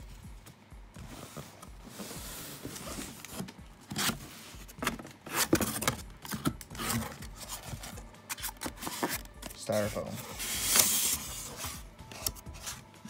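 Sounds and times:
cardboard box scrapes and knocks: 1.0s - 11.9s
soft rubbing on cardboard: 8.8s - 11.9s.

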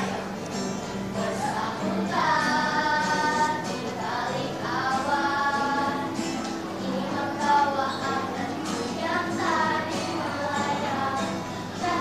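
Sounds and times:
acoustic guitar: 0.0s - 12.0s
girls singing together: 0.0s - 12.0s.

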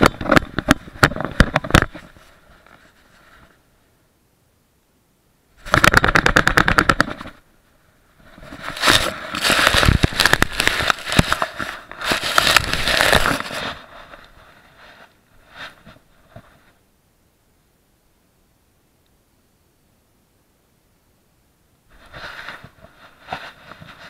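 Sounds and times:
fast clicks: 5.6s - 7.4s, 8.6s - 13.6s
fur rubbing on camera housing: 8.2s - 16.8s, 21.9s - 24.0s.

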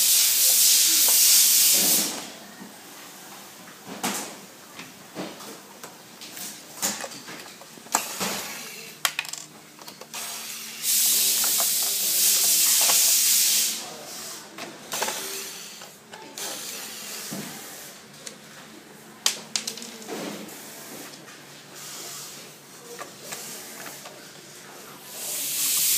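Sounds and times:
loud hiss: 0.0s - 2.3s, 10.2s - 14.4s, 25.1s - 25.9s
plastic parts clicking and knocking: 6.8s - 10.2s, 19.3s - 20.2s.

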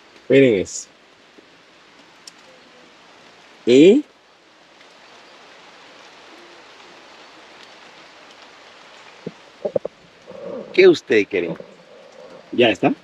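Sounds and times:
light rain hissing: 0.0s - 13.0s.

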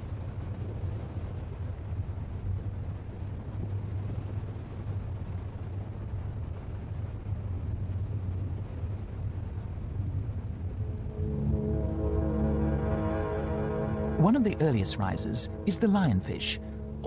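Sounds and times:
steady low rumble: 0.1s - 17.0s
sustained music notes: 10.6s - 17.0s.

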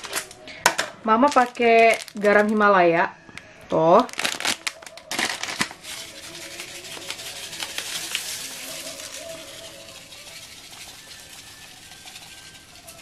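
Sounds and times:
salt sprinkling onto foil: 4.0s - 13.0s.

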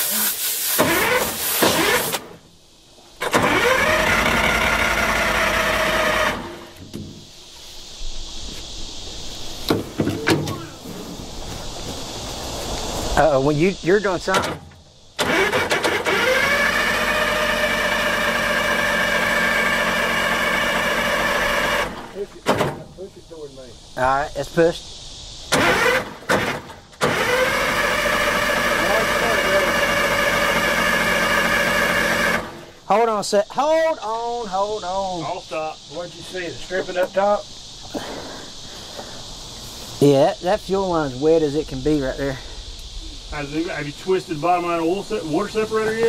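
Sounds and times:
diesel engine starter cranking: 0.7s - 2.4s, 3.2s - 7.0s, 14.2s - 22.8s, 25.5s - 32.8s.

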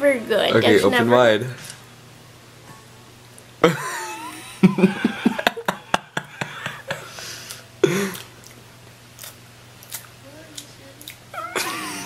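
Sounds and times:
person giggling: 3.6s - 7.2s, 7.8s - 8.3s, 11.4s - 12.0s
person humming: 11.3s - 12.0s.

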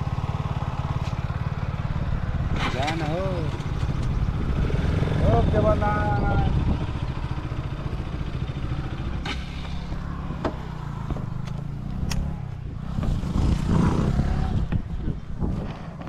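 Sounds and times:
motorcycle engine idling: 0.0s - 13.3s
sharp clicks and clatter: 2.6s - 4.3s.

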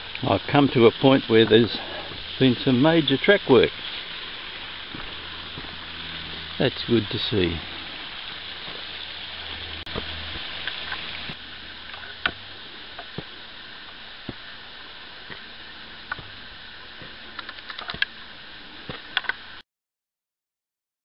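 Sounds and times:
running creek water: 0.0s - 19.6s
footsteps on dirt and stone: 4.7s - 6.4s.

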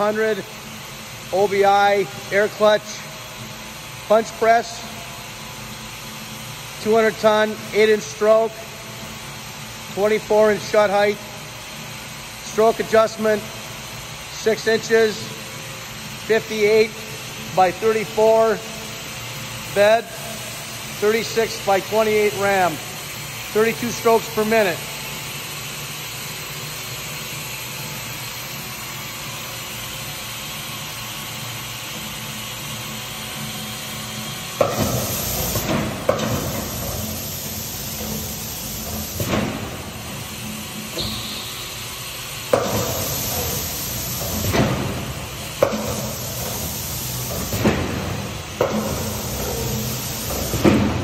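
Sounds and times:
punch press flywheel humming: 0.0s - 51.0s
air clutch hisses: 33.8s - 50.8s.

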